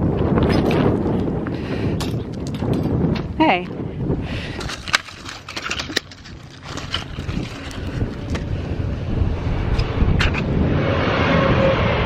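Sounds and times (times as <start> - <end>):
wind rumbling on microphone: 0.0 - 12.0
footsteps crunching on gravel: 4.5 - 8.6.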